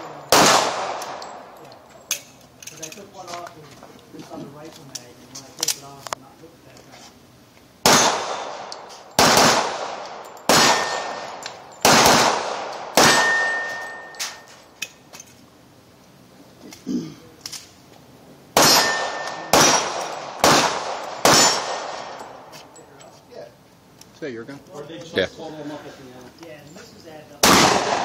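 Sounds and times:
handgun shots echoing: 0.3 - 1.5, 7.8 - 14.4, 18.6 - 22.4, 27.4 - 28.0
steel target ringing: 13.0 - 14.5, 18.6 - 20.0.

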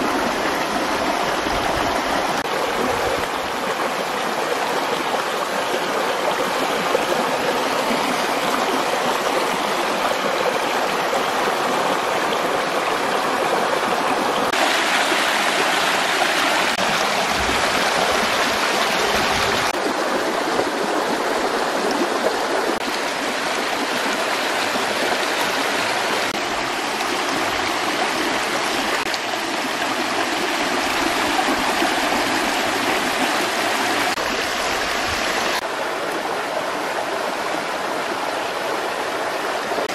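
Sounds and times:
water rushing over rocks: 0.0 - 39.9.

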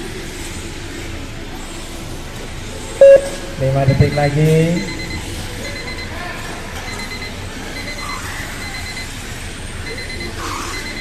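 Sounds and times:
background hum and hiss: 0.0 - 11.0
short electronic beeps: 3.0 - 5.2.

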